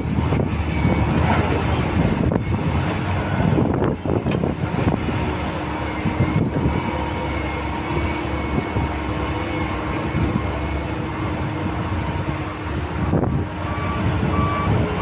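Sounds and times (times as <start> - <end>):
excavator diesel engine under load: 0.0 - 15.0
faint steady whine: 0.0 - 15.0.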